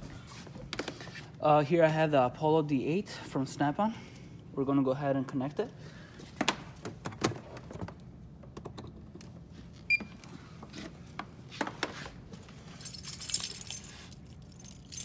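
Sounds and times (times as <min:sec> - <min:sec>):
car keys jangling: 0:12.6 - 0:15.0.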